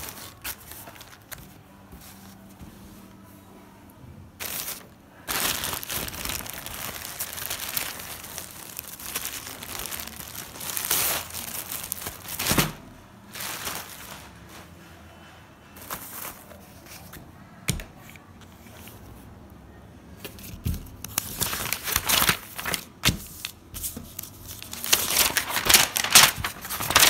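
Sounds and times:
plastic wrapping crinkling: 0.0s - 1.7s, 4.4s - 14.8s, 20.4s - 27.0s.

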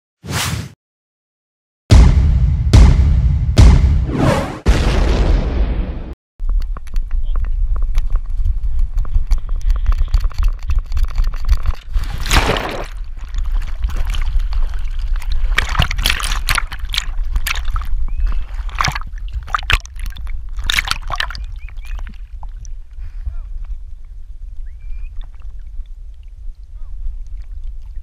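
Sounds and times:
dog splashing into water: 12.0s - 17.9s
water sloshing as dog swims: 13.0s - 22.9s.

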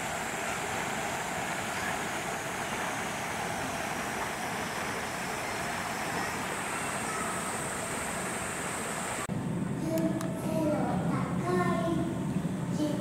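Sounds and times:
steady hiss: 0.0s - 9.3s.

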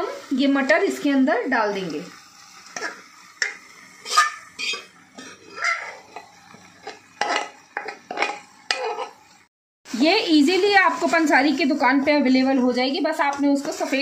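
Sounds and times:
spatula scraping metal pot: 2.8s - 9.2s.

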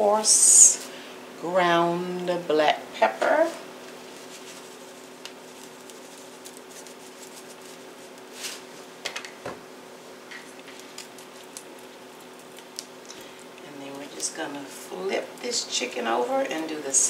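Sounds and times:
low hiss and hum: 0.0s - 17.0s
pepper shaker rattling: 10.7s - 13.1s.

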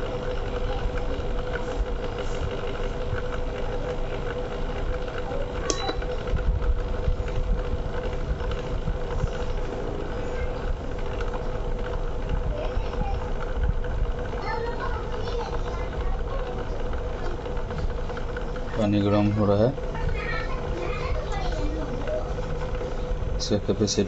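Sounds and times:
cooling fan hiss: 0.0s - 24.0s
induction cooktop electrical hum: 0.0s - 24.0s.

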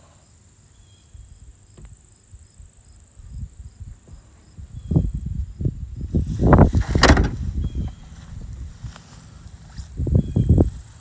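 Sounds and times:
insects trilling: 0.0s - 11.0s
low rumbling: 4.2s - 10.9s.

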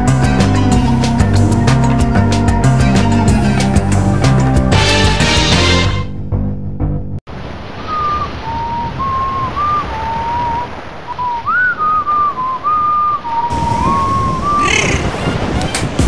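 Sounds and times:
surf-like noise: 7.3s - 16.0s
person whistling a tune: 11.2s - 15.0s.

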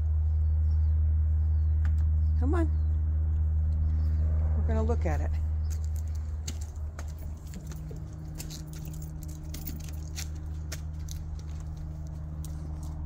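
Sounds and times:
low machine hum: 0.0s - 13.0s
footsteps on pine needles and leaves: 5.6s - 13.0s.

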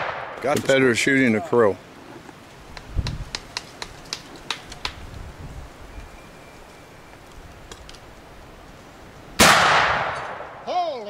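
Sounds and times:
rifle shot: 0.0s - 0.7s, 9.4s - 10.6s.

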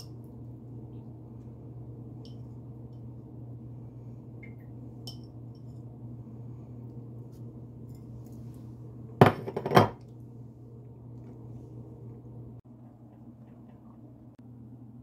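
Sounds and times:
steady low hum: 0.0s - 15.0s
kitchenware clinking and rattling: 9.2s - 10.0s.

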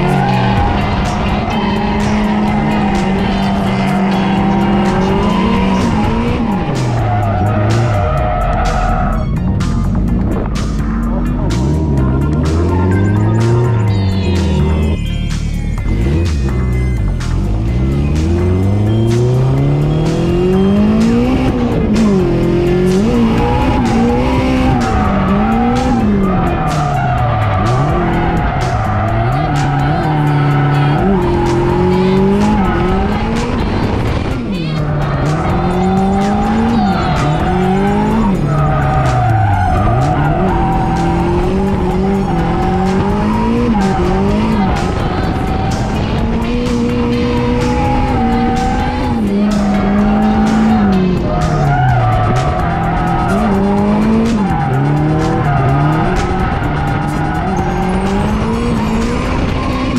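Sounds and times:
turbocharged engine revving: 0.0s - 59.9s
tyres squealing: 34.4s - 59.9s.

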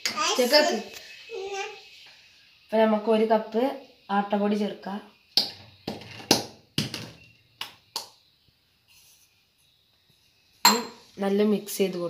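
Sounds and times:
metallic taps on steel bowl: 10.7s - 11.0s.

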